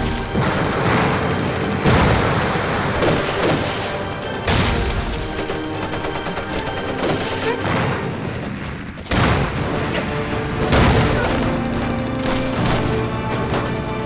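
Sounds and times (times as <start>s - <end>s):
loud explosion blasts: 0.0s - 5.3s, 7.6s - 10.0s, 10.6s - 12.5s
gunfire: 0.0s - 13.3s
dramatic film score: 0.0s - 14.0s.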